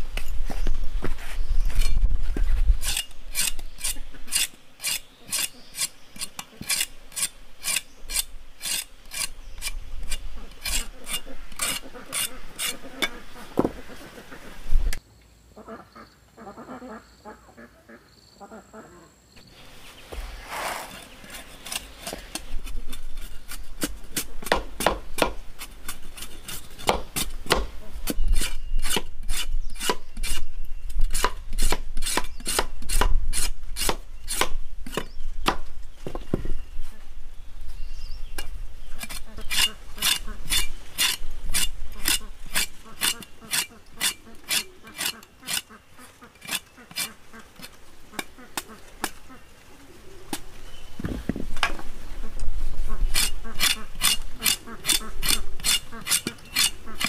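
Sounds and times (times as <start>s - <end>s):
knife scraping cassava skin: 2.8s - 13.2s, 20.1s - 35.1s, 38.4s - 45.8s, 46.4s - 49.2s, 53.1s - 57.0s.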